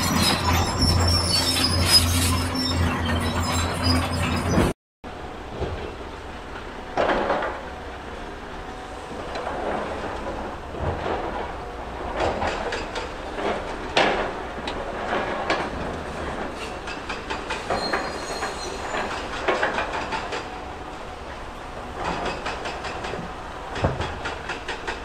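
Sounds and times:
short high squeal: 0.0s - 4.8s, 17.7s - 19.1s.

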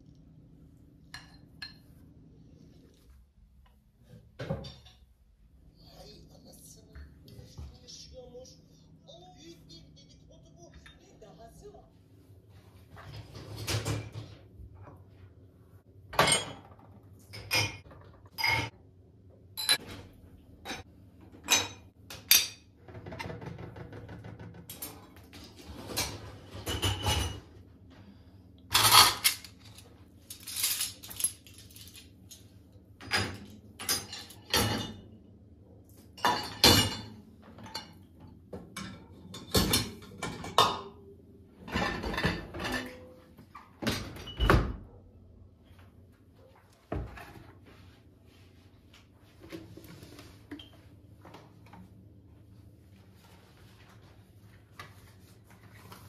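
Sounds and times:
dishes and cutlery clinking: 1.0s - 2.0s, 4.4s - 5.1s, 16.1s - 18.8s, 19.6s - 27.6s, 28.7s - 35.2s, 36.0s - 41.0s, 41.6s - 44.8s.

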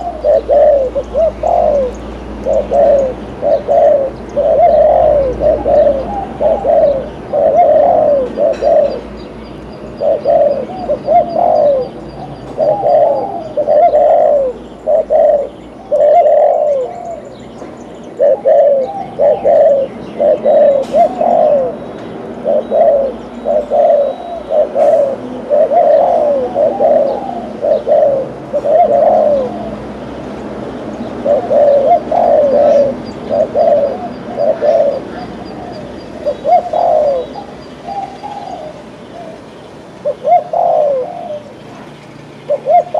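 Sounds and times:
dove cooing: 0.0s - 9.2s, 10.0s - 17.4s, 18.1s - 30.0s, 31.0s - 41.8s, 42.5s - 42.9s.

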